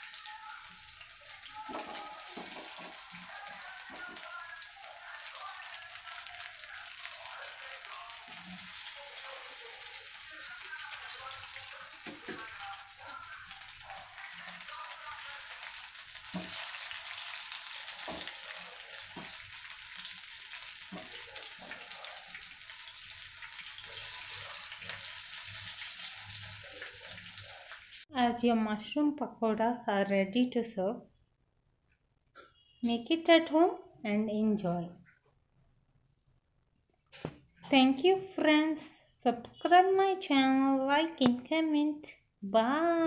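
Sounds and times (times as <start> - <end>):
deep-frying sizzle and crackle: 0.0 - 28.1.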